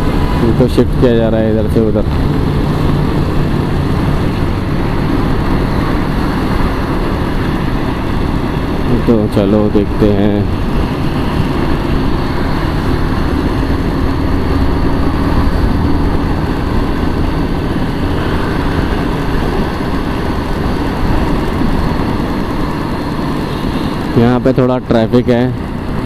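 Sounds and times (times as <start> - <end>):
motorcycle engine running: 0.0 - 26.0
road noise: 0.0 - 26.0.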